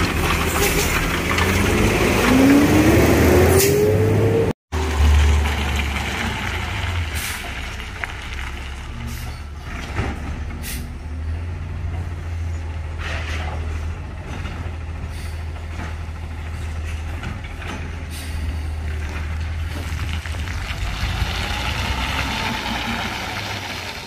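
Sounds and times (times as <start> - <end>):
air brakes hissing: 10.6 - 11.0.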